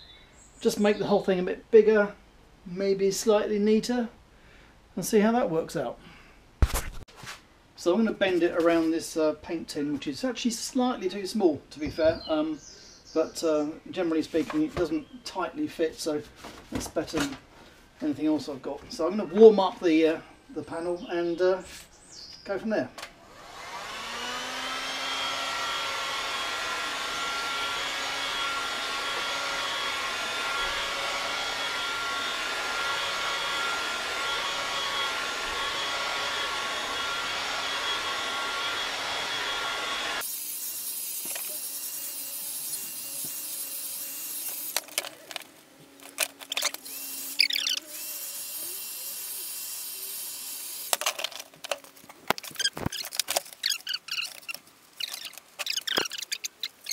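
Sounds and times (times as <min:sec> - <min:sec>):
heat gun fan whine: 0:23.2 - 0:56.9.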